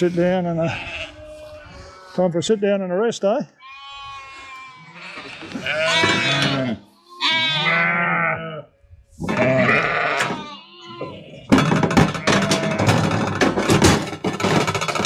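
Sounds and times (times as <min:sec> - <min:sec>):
lambs bleating: 0:00.6 - 0:02.2, 0:03.6 - 0:11.5
rattling and knocking of metal cradle: 0:11.5 - 0:15.0.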